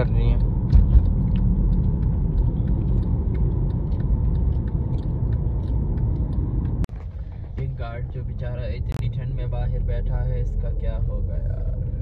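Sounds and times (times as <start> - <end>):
car engine low rumble: 0.0 - 12.0.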